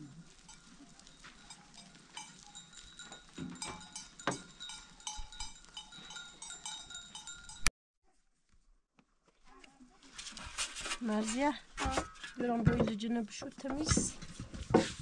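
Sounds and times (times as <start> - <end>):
goat bells clinking: 0.0 - 7.7.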